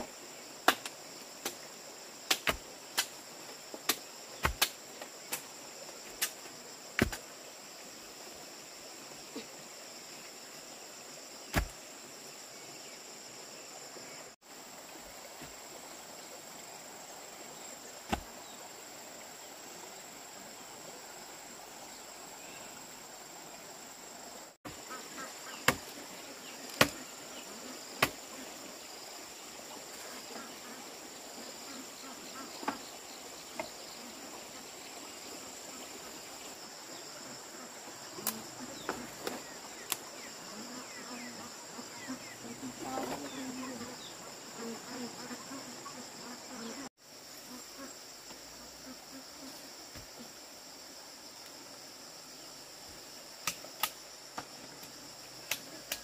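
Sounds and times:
insects chirring: 0:00.0 - 0:56.0.

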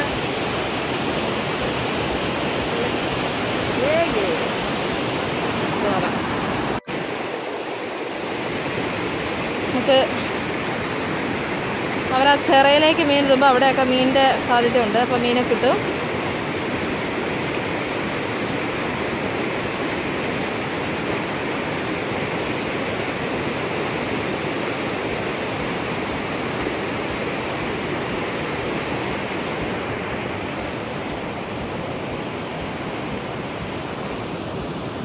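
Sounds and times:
water rushing over weir: 0:00.0 - 0:35.0.

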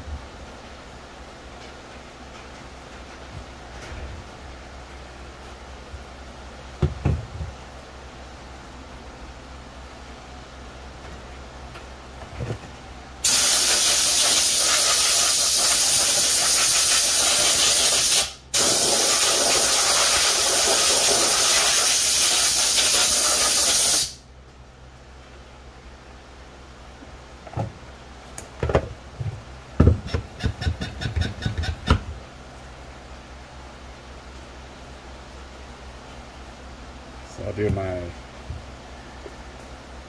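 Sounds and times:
compressed-air blow gun hissing: 0:13.2 - 0:24.2.

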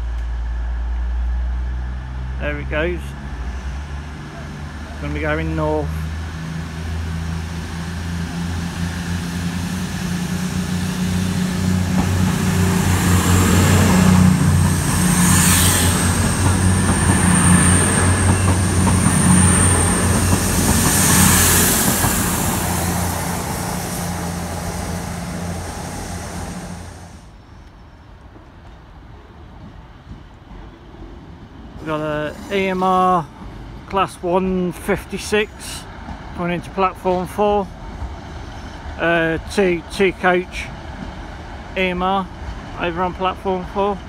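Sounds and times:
diesel train engine drone: 0:00.0 - 0:44.0.

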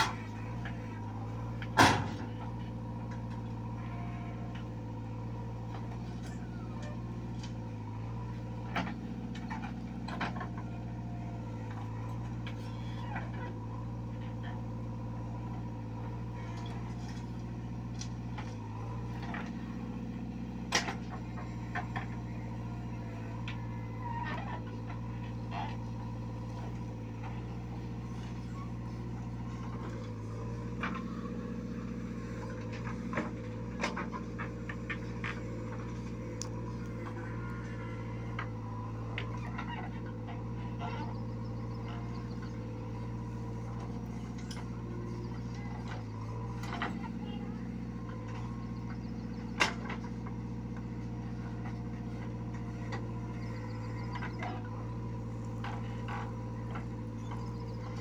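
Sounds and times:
backhoe diesel engine running: 0:00.0 - 0:58.0.

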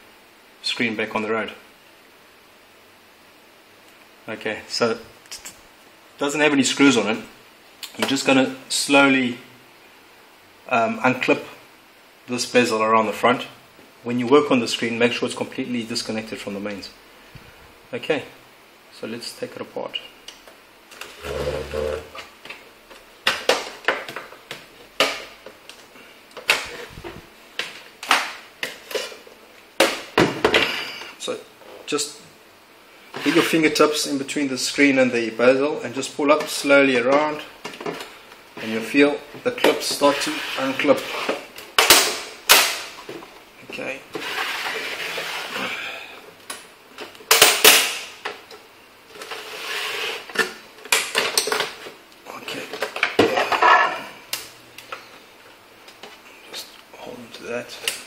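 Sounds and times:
plastic rubbing: 0:44.1 - 0:45.7.

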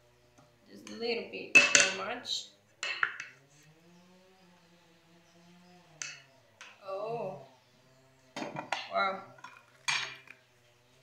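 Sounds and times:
metal spoon clattering on pots: 0:01.5 - 0:02.0, 0:02.8 - 0:03.3, 0:08.4 - 0:10.3.

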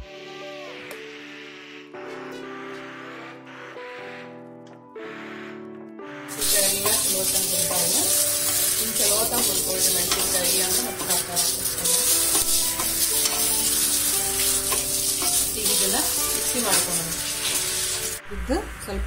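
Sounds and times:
wooden spatula stirring: 0:06.3 - 0:18.2
chillies sizzling in hot oil: 0:06.3 - 0:18.6.

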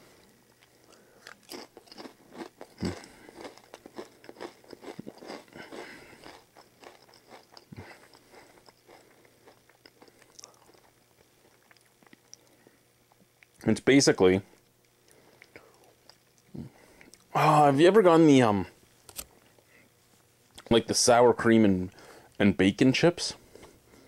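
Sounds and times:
potato chips crunching: 0:00.5 - 0:12.5.

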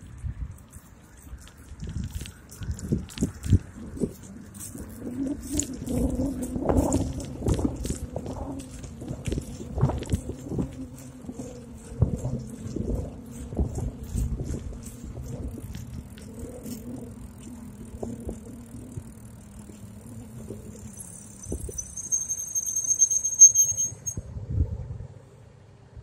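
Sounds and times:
bicycle tyres rolling on road: 0:00.0 - 0:26.0
bicycle brakes squealing: 0:16.3 - 0:24.2.

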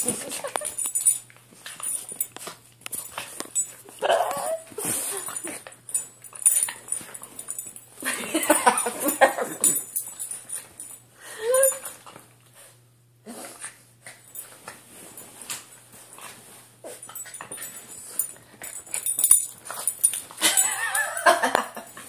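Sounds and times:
dog whimpering: 0:04.0 - 0:04.7
dog whining: 0:04.0 - 0:04.7.

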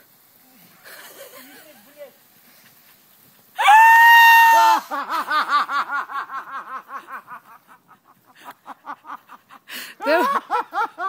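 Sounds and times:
person laughing: 0:04.8 - 0:11.0.

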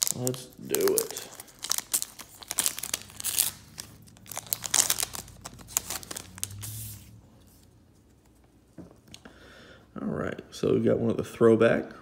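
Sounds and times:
foil wrapper tearing and crinkling: 0:00.0 - 0:06.9.

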